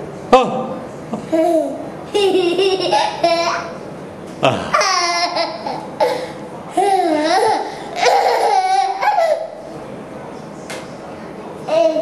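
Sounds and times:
toddler laughing: 1.2s - 3.8s, 4.7s - 9.6s.

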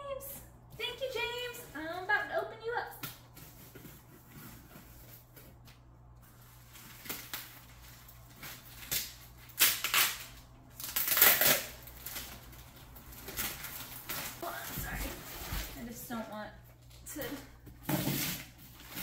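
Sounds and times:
packaging rustling: 3.2s - 15.8s.

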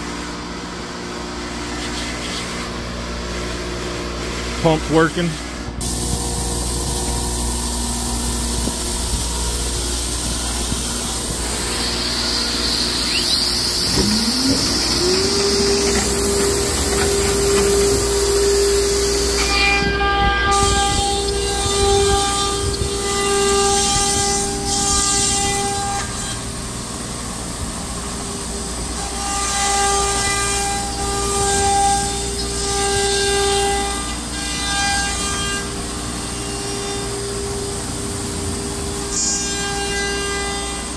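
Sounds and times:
vacuum pump running: 5.5s - 29.2s
machine whining tones: 5.7s - 40.9s
router spindle whine: 5.8s - 40.9s.

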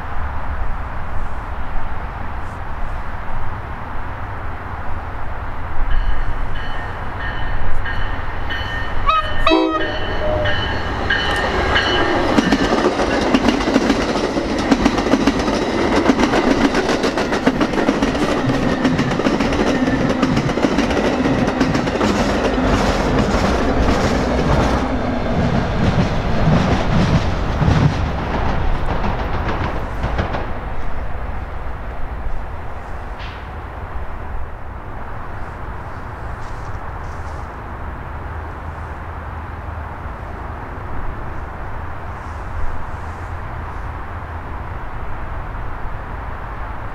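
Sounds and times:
train passing rumble: 0.0s - 46.9s
train horn chord: 8.9s - 12.2s
wheels clicking over rail joints: 10.6s - 31.0s.

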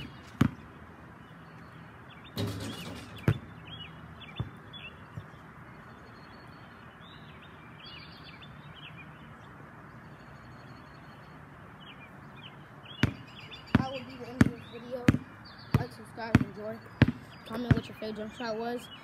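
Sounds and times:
basketball bouncing on concrete: 0.0s - 0.7s, 2.4s - 3.6s, 4.3s - 5.4s, 13.0s - 18.3s
small birds chirping: 0.0s - 19.0s
steady outdoor hiss: 0.0s - 19.0s.

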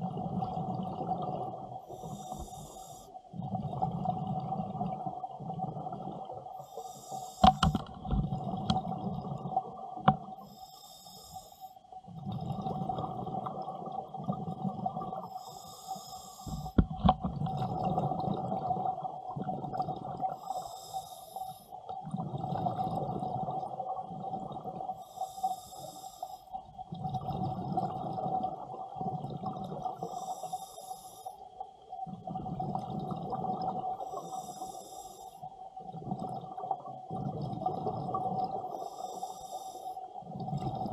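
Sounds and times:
faint steady hum: 0.0s - 40.9s
regulator inhale hiss: 1.8s - 3.3s, 6.6s - 7.8s, 10.4s - 11.9s, 15.2s - 16.8s, 20.4s - 21.8s, 25.0s - 26.6s, 30.0s - 31.5s, 34.0s - 35.5s, 38.7s - 40.1s.

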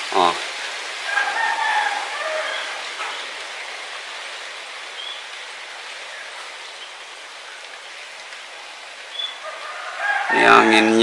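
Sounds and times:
wind rustling tree leaves: 0.0s - 11.0s
faint high chirps: 9.1s - 9.8s.

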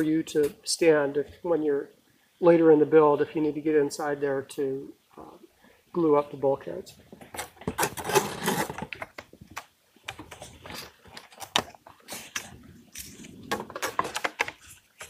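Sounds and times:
wood-on-wood knocks and scraping: 10.1s - 15.0s.

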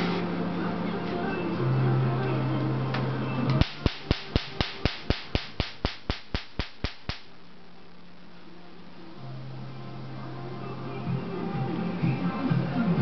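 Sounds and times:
laser firing sharp snapping clicks: 3.6s - 7.3s.

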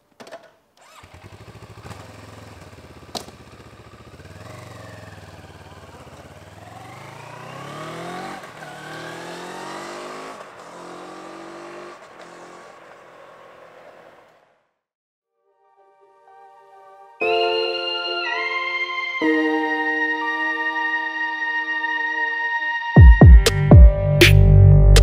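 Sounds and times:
motorcycle engine idling and revving: 0.8s - 14.8s.

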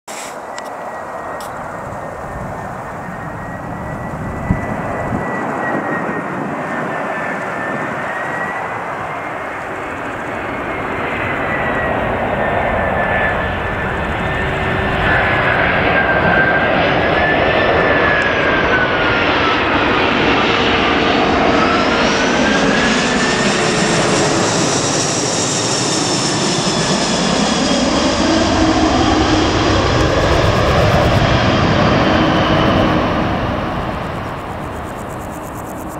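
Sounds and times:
jet airliner roar: 0.1s - 35.9s
jet engine whine: 0.1s - 35.9s.

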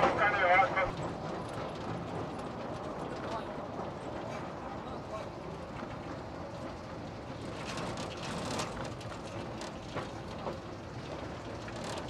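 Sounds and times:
rail trolley rumbling on track: 0.0s - 12.0s
wheels rattling on rails: 0.0s - 12.0s.

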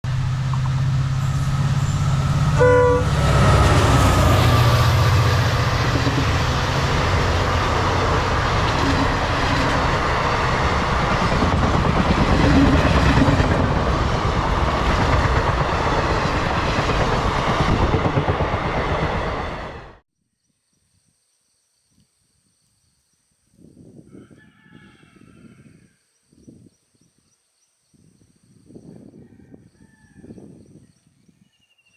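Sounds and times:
diesel locomotive engine: 0.0s - 20.0s
train horn blast: 1.2s - 5.8s
train wheels clattering over rails: 3.2s - 19.8s.

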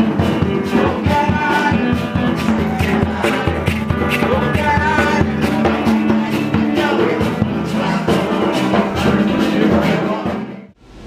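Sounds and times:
live band music with drums: 0.0s - 10.6s
person singing into a microphone: 0.0s - 10.7s.

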